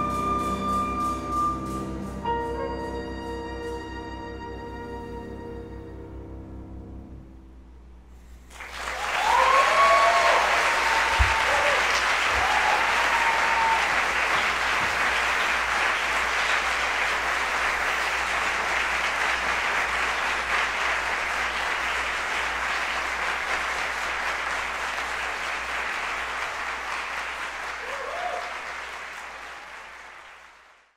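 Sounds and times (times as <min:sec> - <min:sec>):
cheers: 0:08.5 - 0:19.4, 0:25.4 - 0:30.7
audience applauding: 0:08.5 - 0:30.9.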